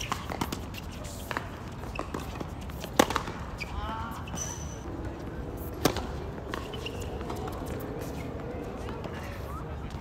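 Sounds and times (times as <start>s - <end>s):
tennis ball struck by racket: 0.0s - 3.5s, 5.8s - 6.7s.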